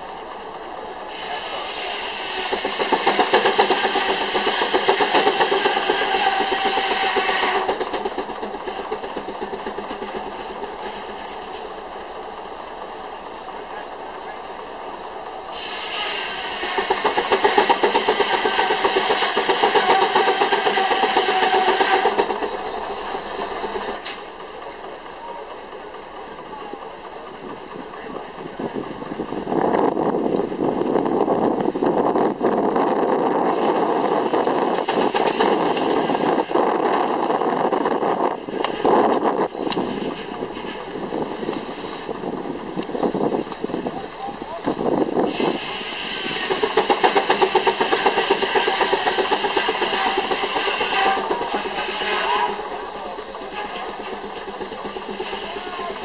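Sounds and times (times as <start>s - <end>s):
steam engine chuffing: 0.0s - 56.0s.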